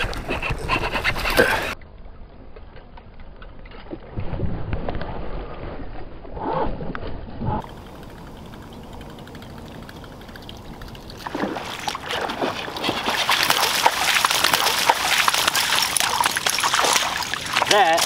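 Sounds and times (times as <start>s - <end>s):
fish thrashing and splashing water: 7.6s - 18.0s.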